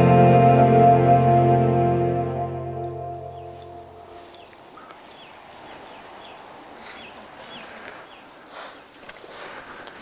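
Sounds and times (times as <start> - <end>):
music of long held chords: 0.0 - 4.3
bird chirps: 3.2 - 8.3.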